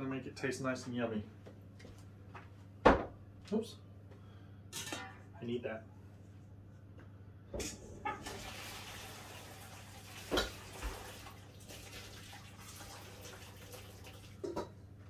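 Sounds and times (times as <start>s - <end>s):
water pouring through colander: 8.2s - 14.4s.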